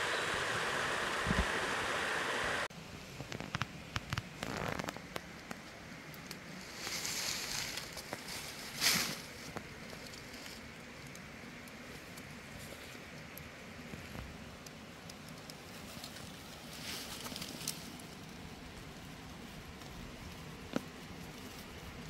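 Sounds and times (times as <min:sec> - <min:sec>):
dry leaves rustling: 0:06.4 - 0:10.8, 0:15.6 - 0:22.0.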